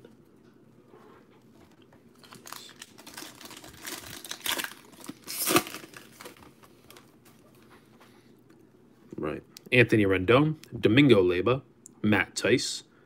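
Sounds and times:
foil wrapper tearing and crinkling: 2.2 - 6.5.

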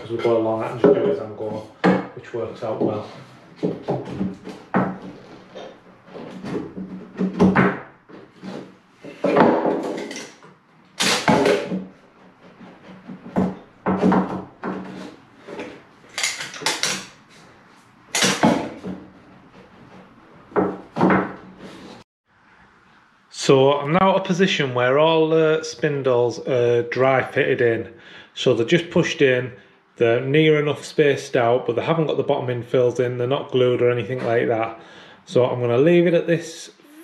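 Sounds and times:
wood scraping thuds: 0.1 - 22.0
wooden knocks: 3.6 - 10.4, 11.3 - 15.7.

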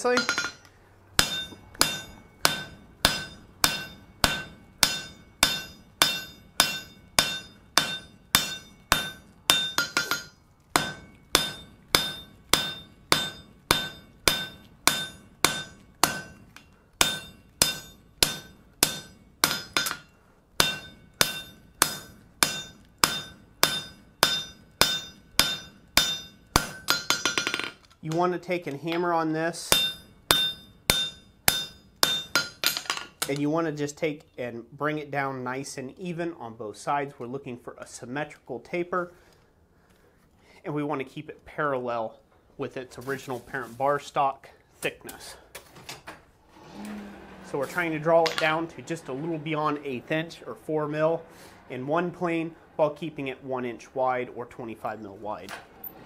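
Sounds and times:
hammer striking steel on anvil: 0.0 - 27.8, 29.6 - 33.4.

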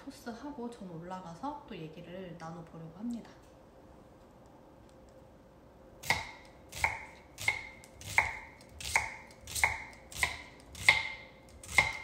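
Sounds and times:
knife chopping on cutting board: 6.0 - 12.0.

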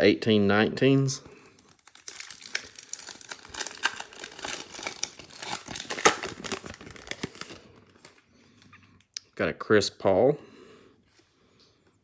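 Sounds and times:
foil wrapper crinkling: 1.6 - 8.2.

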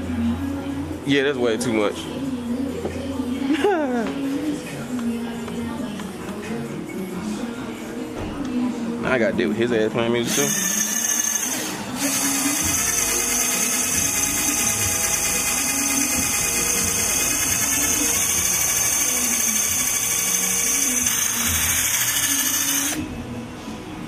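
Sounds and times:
electric drill polishing: 10.3 - 23.0.

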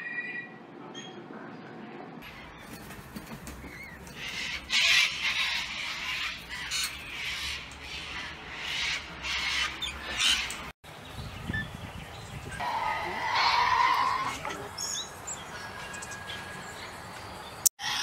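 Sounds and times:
cockatoos screeching: 3.7 - 10.6, 12.6 - 14.7.

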